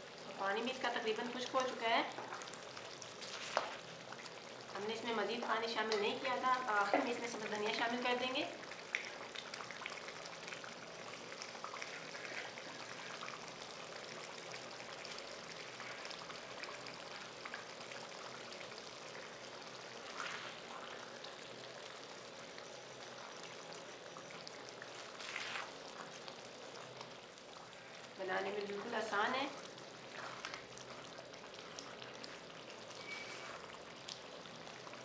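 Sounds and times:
curry simmering and sizzling: 0.0 - 35.0.

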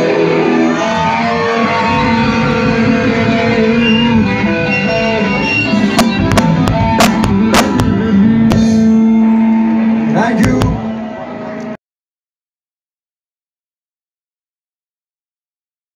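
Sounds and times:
rock band playing loud: 0.0 - 11.8
sharp hits: 2.0 - 11.0.

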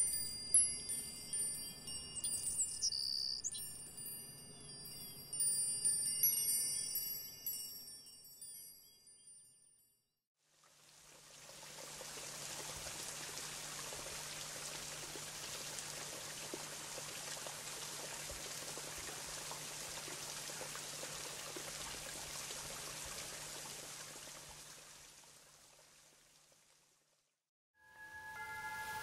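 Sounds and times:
running water with drips: 10.5 - 27.2.

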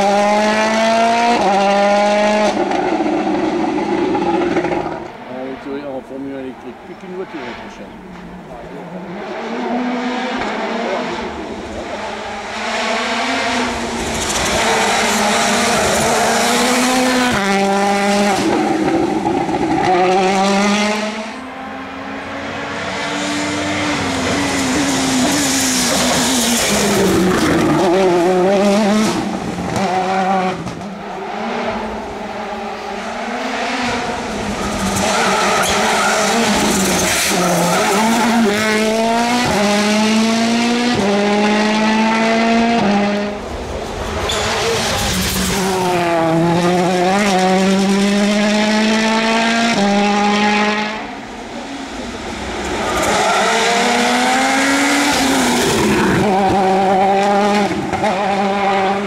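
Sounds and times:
rally car engine revving hard: 0.0 - 5.5, 8.8 - 59.0.

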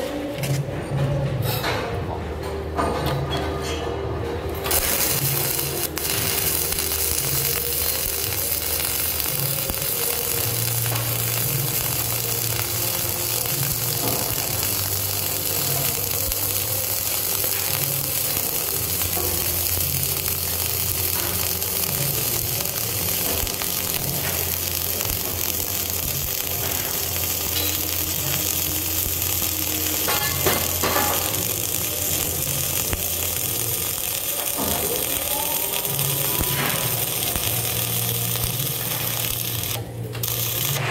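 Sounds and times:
welding arc sizzling crackle: 3.0 - 40.9.

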